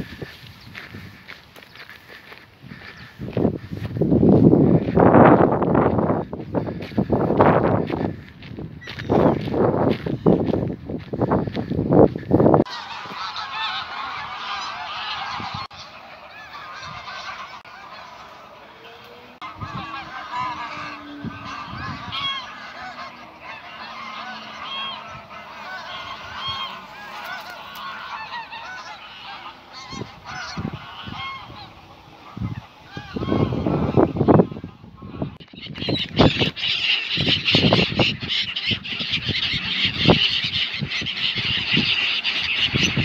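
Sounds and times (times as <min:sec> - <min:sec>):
gulls and waterbirds calling: 0:00.0 - 0:04.0, 0:11.2 - 0:43.0.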